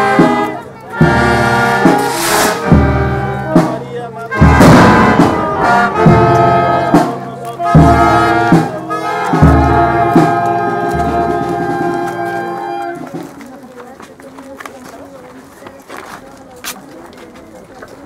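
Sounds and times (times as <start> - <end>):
brass band playing: 0.0 - 13.1
drum or cymbal strikes: 1.0 - 3.8, 4.4 - 8.7.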